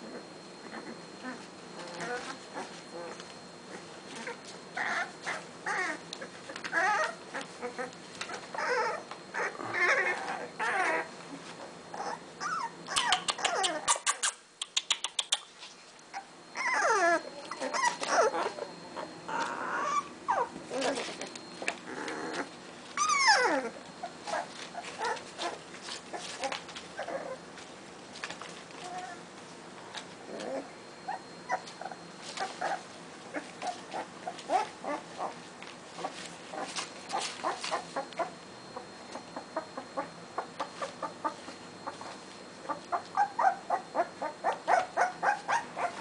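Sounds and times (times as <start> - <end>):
puppies whining and yelping: 0.0 - 14.4, 16.1 - 27.5, 30.0 - 46.0
sharp clicks: 13.0 - 15.5.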